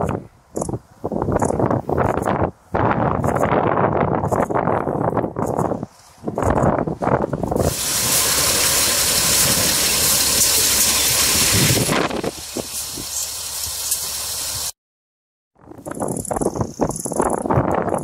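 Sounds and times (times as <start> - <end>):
loud hiss of noise: 7.6 - 14.8.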